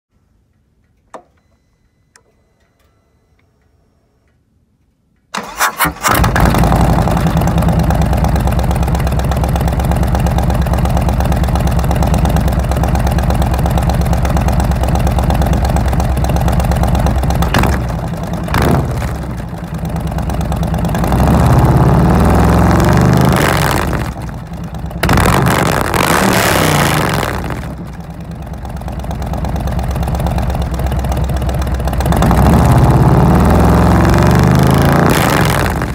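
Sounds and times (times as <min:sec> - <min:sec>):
motorcycle engine revving: 0:05.4 - 0:35.9
motorcycle engine idling loudly: 0:06.4 - 0:35.9.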